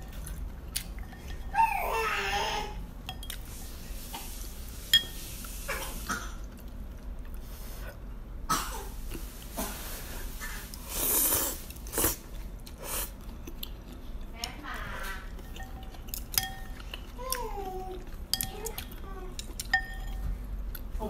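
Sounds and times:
slurping noodles: 10.4 - 12.2.

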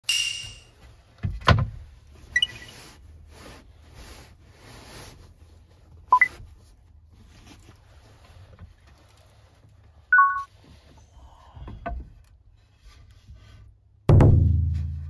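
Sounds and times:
rising two-note beep: 10.2 - 10.5
short electronic beep: 10.2 - 10.5
loud thud: 14.1 - 15.0.

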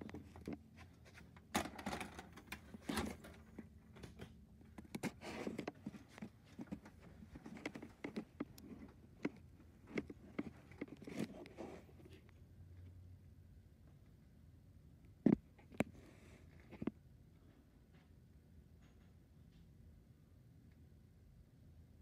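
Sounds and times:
cassette clicking and rustling: 0.0 - 12.2
faint low hum: 0.0 - 22.0.

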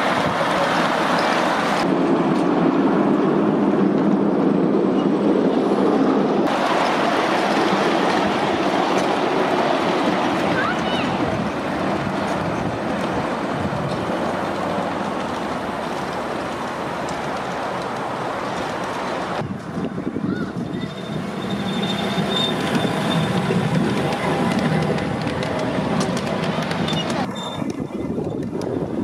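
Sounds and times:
miniature train rolling on rails: 0.0 - 5.4, 6.5 - 29.0
high-pitched wheel squeal: 20.3 - 24.6, 26.8 - 28.4.

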